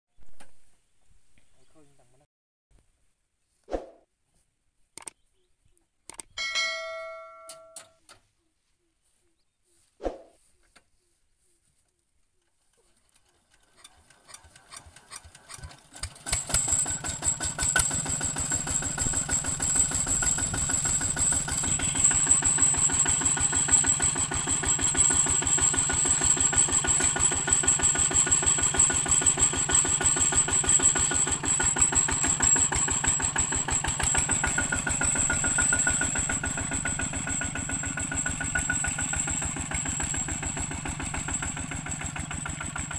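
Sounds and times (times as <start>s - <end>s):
diesel engine starting and chugging: 12.6s - 42.9s.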